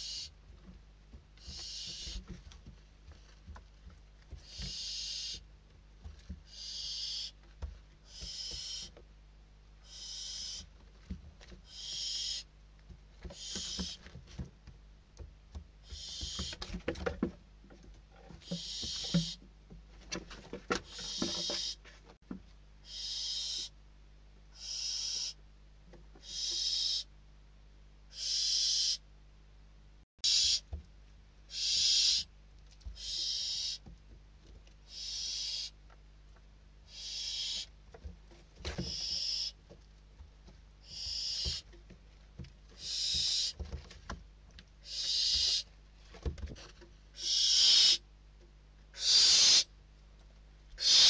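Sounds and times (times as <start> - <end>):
owl chicks hissing begging calls: 0.0 - 0.3, 1.4 - 2.2, 4.4 - 5.4, 6.5 - 7.4, 8.1 - 9.0, 9.8 - 10.7, 11.7 - 12.5, 13.3 - 14.0, 15.8 - 16.6, 18.4 - 19.4, 20.8 - 21.8, 22.8 - 23.8, 24.6 - 25.4, 26.2 - 27.1, 28.1 - 29.0, 30.2 - 30.7, 31.5 - 32.3, 32.9 - 33.8, 34.9 - 35.8, 36.9 - 37.7, 38.9 - 39.6, 40.8 - 41.6, 42.8 - 43.6, 44.8 - 45.7, 47.2 - 48.0, 48.9 - 49.7, 50.8 - 51.0.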